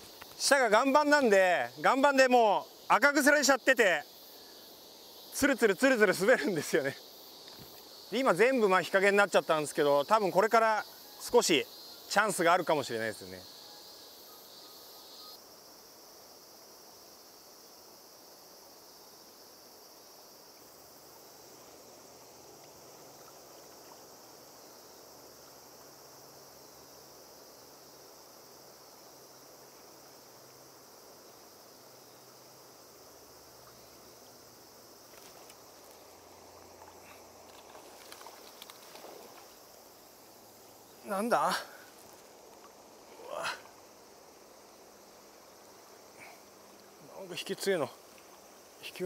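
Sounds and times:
insects singing: 0.0s - 49.0s
faint clicks: 36.8s - 39.5s.

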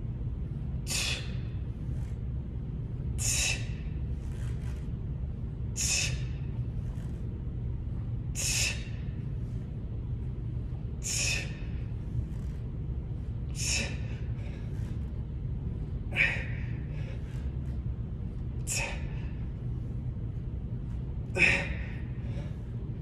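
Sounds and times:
steady low hum: 0.0s - 23.0s
man breathing forcefully: 0.3s - 2.1s, 3.0s - 7.0s, 8.2s - 9.8s, 10.5s - 20.0s, 21.0s - 23.0s.

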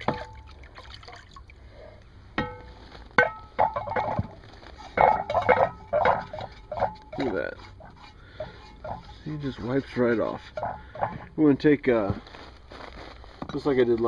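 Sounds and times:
water sloshing and running off: 0.0s - 1.8s
gloved hand rubbing wet pan: 3.6s - 11.4s.

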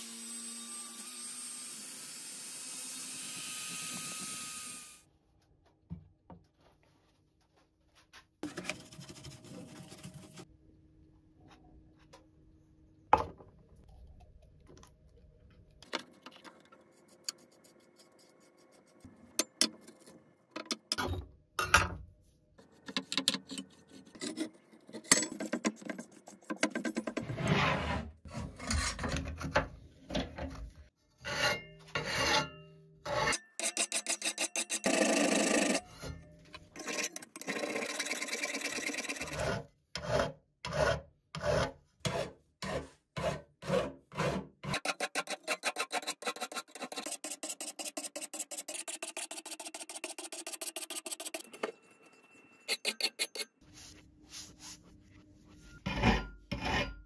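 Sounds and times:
tools knocking and scraping: 19.3s - 22.0s, 22.8s - 27.5s, 28.3s - 39.4s, 55.8s - 57.0s
file rasping on steel blade: 31.2s - 36.0s, 36.8s - 51.6s, 52.7s - 53.6s, 55.8s - 57.0s.

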